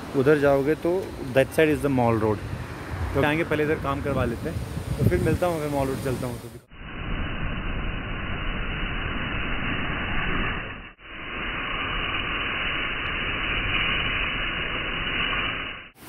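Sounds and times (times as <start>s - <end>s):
foam sprayer: 8.4s - 16.0s
pressure washer spraying car: 11.8s - 16.0s.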